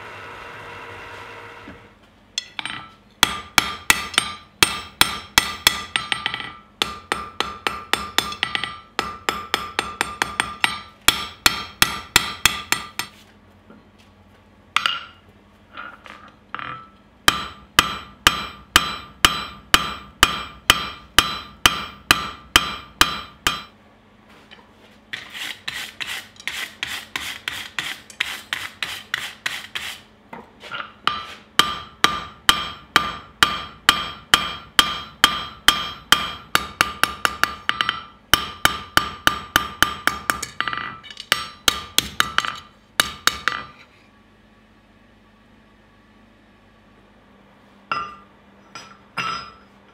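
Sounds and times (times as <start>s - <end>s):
hammer ringing on anvil: 2.4s - 13.1s, 16.6s - 23.8s, 31.1s - 43.8s, 47.9s - 49.7s.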